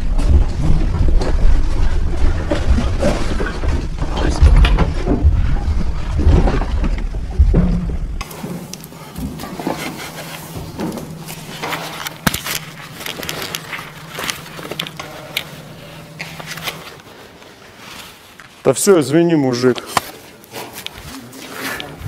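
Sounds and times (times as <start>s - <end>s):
person clambering over metal: 0.0s - 17.1s
low electrical buzz: 0.0s - 18.3s.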